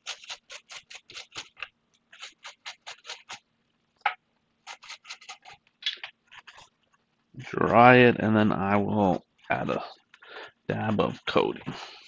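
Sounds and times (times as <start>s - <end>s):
toothbrush scrubbing circuit board: 0.0s - 3.4s, 4.6s - 6.7s.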